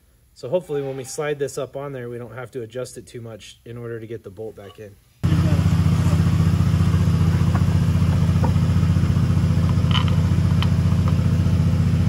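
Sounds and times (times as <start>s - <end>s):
low mechanical drone with flutter: 5.2s - 12.0s.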